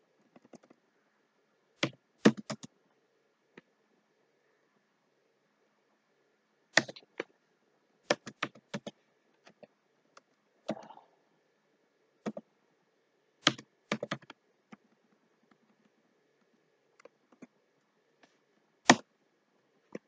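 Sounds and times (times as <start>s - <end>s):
faint steady hum: 0.0s - 20.0s
keyboard keystroke clicks: 13.4s - 15.0s.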